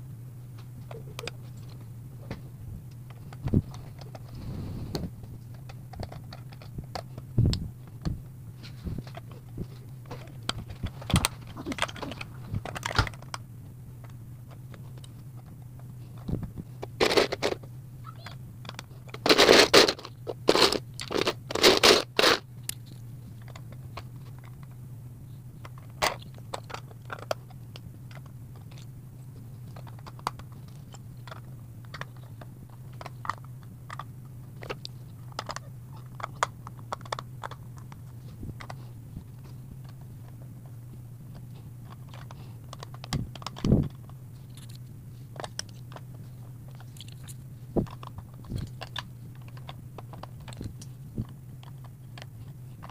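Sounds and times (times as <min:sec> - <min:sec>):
steady low hum: 0:00.0 - 0:52.9
plastic bricks clicking: 0:10.1 - 0:13.4, 0:16.2 - 0:17.7, 0:18.6 - 0:23.7, 0:29.7 - 0:38.8, 0:46.7 - 0:52.9.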